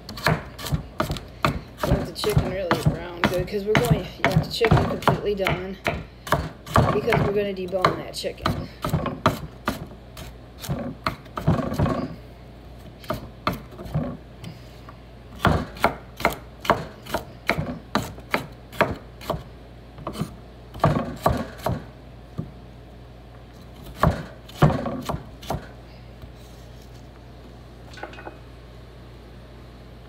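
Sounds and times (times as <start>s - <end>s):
knife chopping on wooden board: 0.1s - 12.1s, 13.0s - 14.2s, 15.4s - 19.4s, 20.0s - 22.5s, 23.8s - 25.7s.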